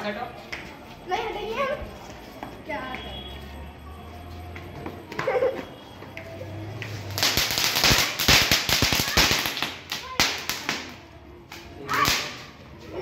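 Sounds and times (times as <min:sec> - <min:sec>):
firework fountain hissing and popping: 0:07.1 - 0:11.0.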